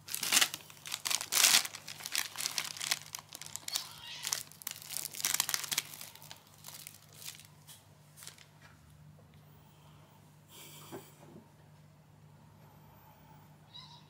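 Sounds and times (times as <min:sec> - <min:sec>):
crinkling crackling rustles: 0:00.0 - 0:08.8.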